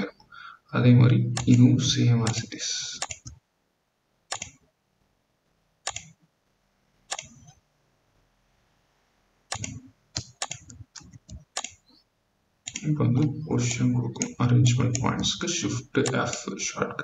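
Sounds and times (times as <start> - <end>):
computer mouse clicking: 1.4 - 1.7, 2.3 - 3.4, 4.3 - 4.6, 5.8 - 6.2, 7.1 - 7.6, 9.5 - 12.0, 12.6 - 15.3.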